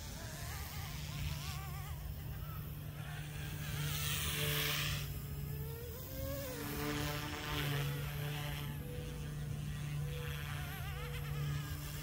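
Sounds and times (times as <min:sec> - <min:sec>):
rc helicopter rotor hum: 0:00.0 - 0:12.0.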